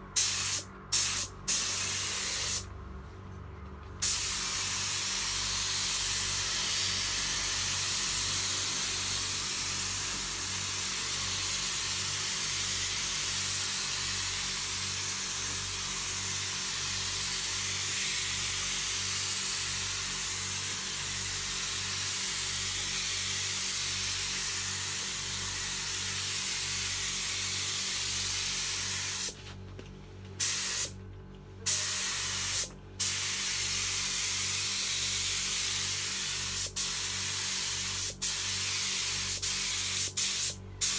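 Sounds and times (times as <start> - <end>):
spray gun hissing: 4.0 - 10.0, 31.7 - 40.9.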